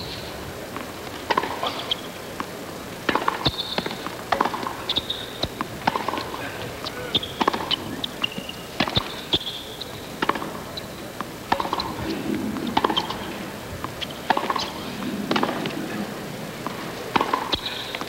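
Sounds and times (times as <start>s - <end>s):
tennis ball bouncing: 0.7s - 2.5s, 3.1s - 9.5s, 10.2s - 18.0s
tennis ball struck by rackets: 3.1s - 6.4s, 7.3s - 9.5s, 10.2s - 10.6s, 11.2s - 13.3s, 13.9s - 15.8s, 16.6s - 17.8s.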